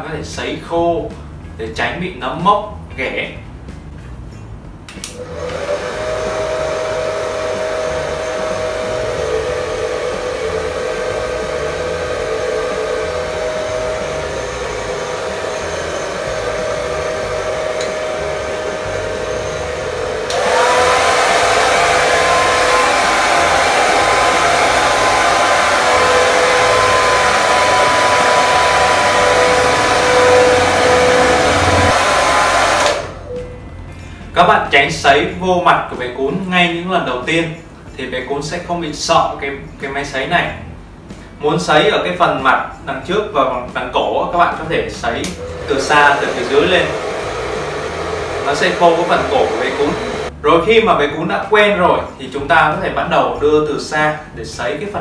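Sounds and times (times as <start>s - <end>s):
hair dryer blowing: 5.1s - 33.2s, 45.2s - 50.3s.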